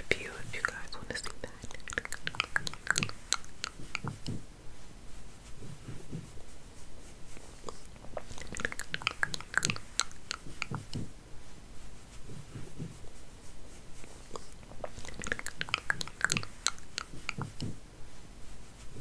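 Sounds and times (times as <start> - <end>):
soft brushing thumps: 5.1 - 7.5.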